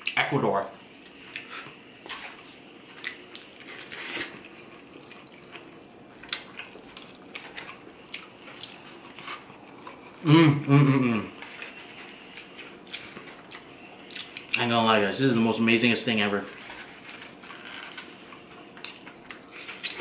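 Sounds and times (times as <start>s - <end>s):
person chewing food: 0.9s - 10.2s, 11.3s - 14.6s, 16.5s - 20.0s
person humming with falling pitch: 10.2s - 11.3s.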